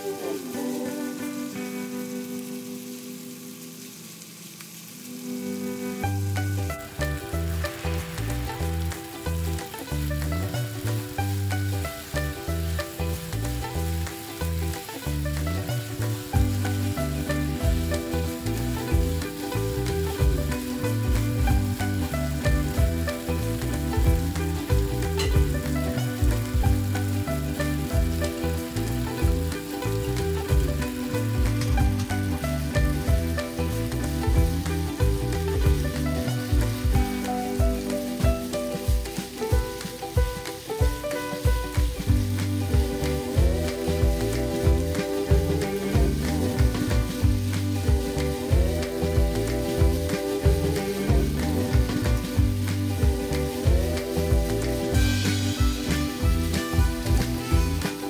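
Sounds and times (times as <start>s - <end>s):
meat sizzling in a frying pan: 0.0s - 58.0s
spatula scraping and tapping pan: 22.6s - 26.7s.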